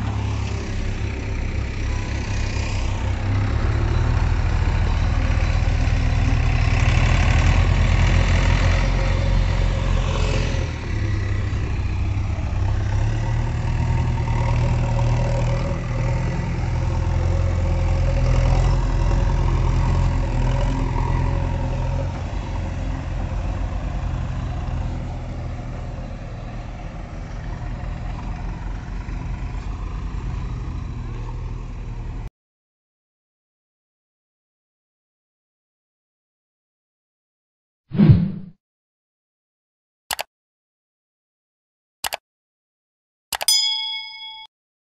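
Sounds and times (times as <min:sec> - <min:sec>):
diesel engine rumbling: 0:00.0 - 0:32.3.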